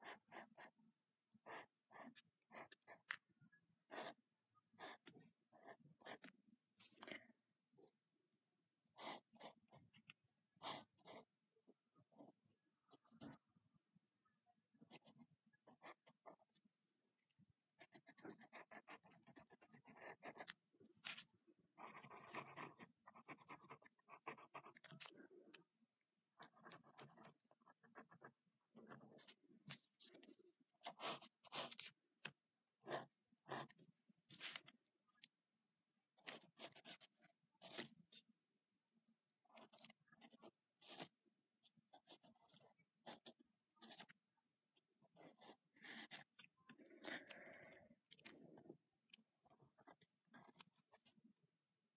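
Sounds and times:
pencil scratching on paper: 0.0s - 3.2s, 3.9s - 6.9s, 9.0s - 11.3s, 12.1s - 13.5s, 14.8s - 16.6s, 17.8s - 25.5s, 26.4s - 32.0s, 32.8s - 34.8s, 36.2s - 38.3s, 39.4s - 44.2s, 44.8s - 47.5s, 48.1s - 51.3s.

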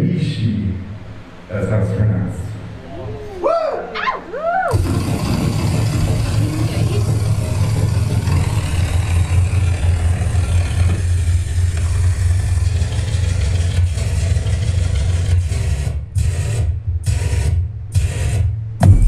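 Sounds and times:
loud electronic music: 4.7s - 11.0s, 15.4s - 19.0s.

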